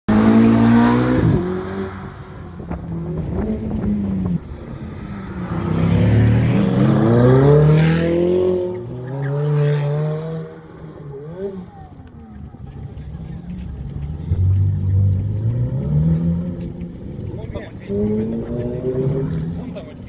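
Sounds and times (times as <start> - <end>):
sports cars accelerating hard: 0.1 - 11.9, 12.8 - 20.0.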